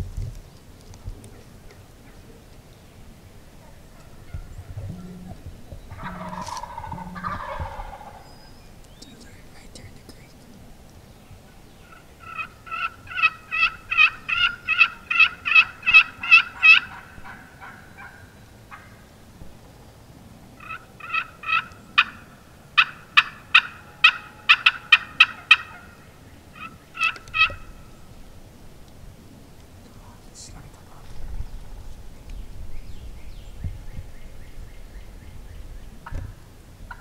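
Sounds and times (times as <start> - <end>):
turkey yelping: 3.6 - 8.4, 11.8 - 19.0, 20.6 - 27.8.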